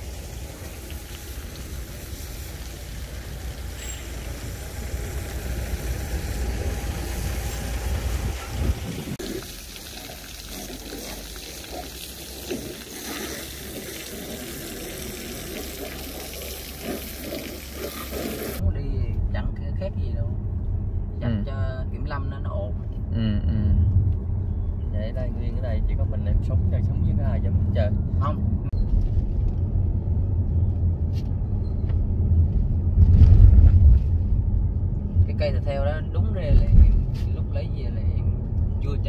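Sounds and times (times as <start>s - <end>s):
low rumble: 0.0s - 9.6s, 18.5s - 39.0s
water running and splashing: 0.0s - 18.6s.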